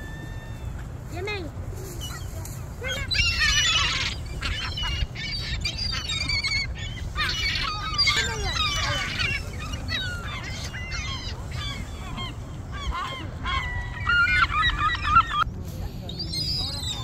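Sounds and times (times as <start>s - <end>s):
gulls squawking: 1.9s - 15.5s.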